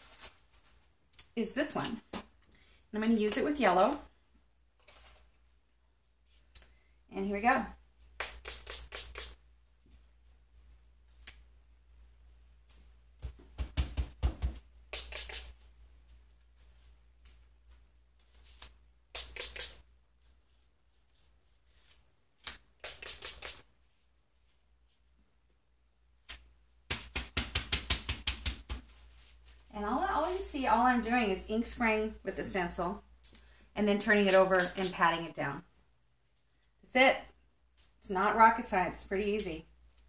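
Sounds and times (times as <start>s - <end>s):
spray bottle hissing sprays: 8.2s - 9.4s, 14.9s - 15.6s, 19.1s - 19.8s, 22.8s - 23.6s, 34.3s - 35.0s.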